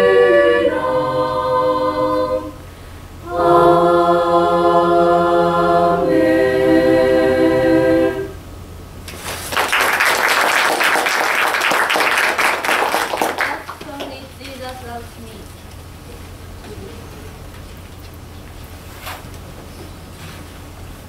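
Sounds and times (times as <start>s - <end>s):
choir singing a cappella: 0.0s - 8.4s
audience applause: 9.4s - 14.2s.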